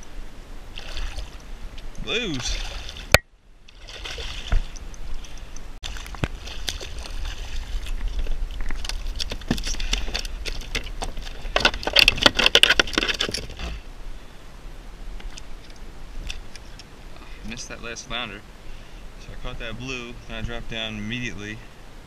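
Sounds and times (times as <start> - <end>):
low steady rumble: 0.0 - 22.0
water splashing: 0.6 - 13.7
clicks and knocks on kayak: 7.8 - 13.7.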